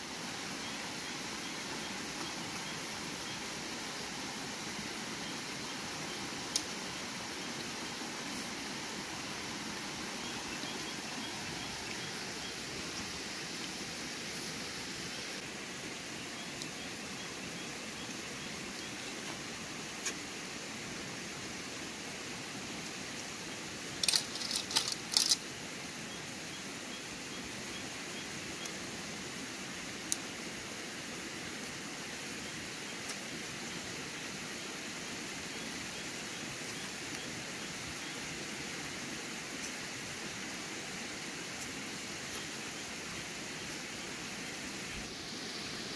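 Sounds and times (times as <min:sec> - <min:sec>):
stream water rushing: 0:00.0 - 0:24.3.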